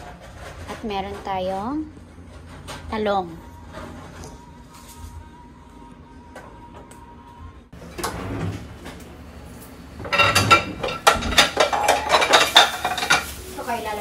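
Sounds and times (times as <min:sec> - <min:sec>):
dishes and cutlery clattering: 0:10.0 - 0:14.0.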